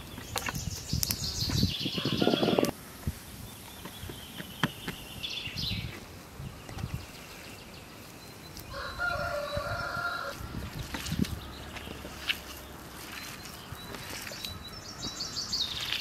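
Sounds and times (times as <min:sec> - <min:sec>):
rooster crowing: 0:02.0 - 0:02.7, 0:08.7 - 0:10.4
faint bird chirps: 0:11.3 - 0:16.0.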